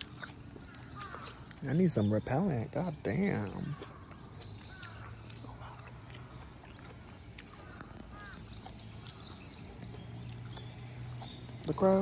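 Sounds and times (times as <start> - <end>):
crows cawing faintly: 0.6 - 1.5, 3.6 - 9.3.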